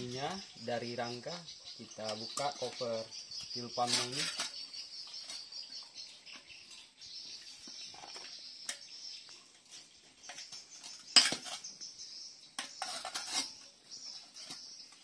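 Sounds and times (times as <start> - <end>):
tool prying and scraping metal: 10.2 - 11.7, 12.6 - 14.9.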